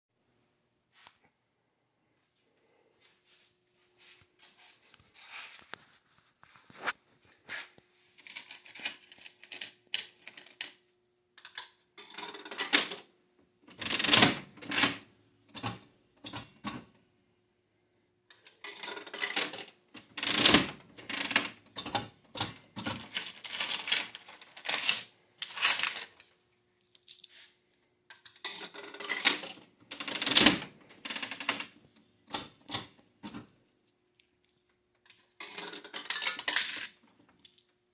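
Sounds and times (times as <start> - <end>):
slot machine mechanism clattering: 8.2 - 10.7, 12.0 - 13.0, 13.7 - 16.6, 18.5 - 26.2, 28.4 - 31.8, 35.4 - 37.0.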